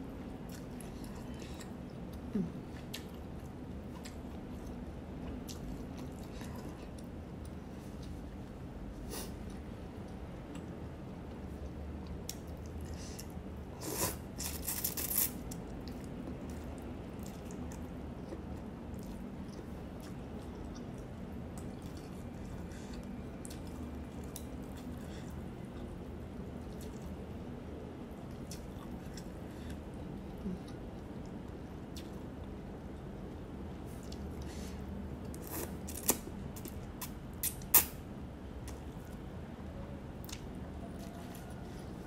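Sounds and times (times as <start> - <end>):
low room hum: 0.0 - 42.0
chewing with wet mouth clicks: 0.4 - 8.2, 14.6 - 25.9, 26.6 - 27.2, 28.1 - 33.2, 40.2 - 41.6.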